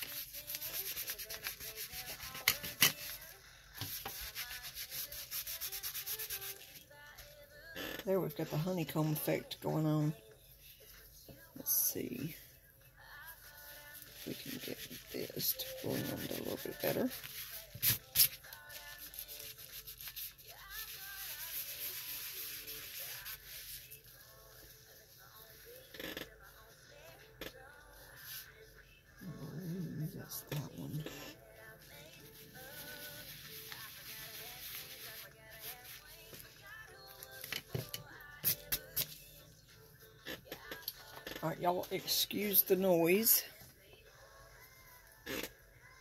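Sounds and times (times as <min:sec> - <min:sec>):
wipe rubbing on paper: 0:00.0 - 0:06.8, 0:13.4 - 0:25.8, 0:29.2 - 0:36.5.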